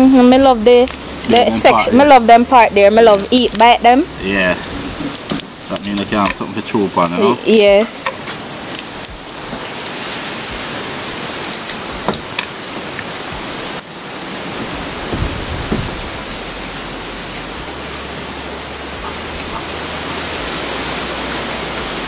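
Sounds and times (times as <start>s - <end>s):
steady rushing hiss: 0.0s - 22.0s
lobster shells clicking: 11.4s - 13.1s.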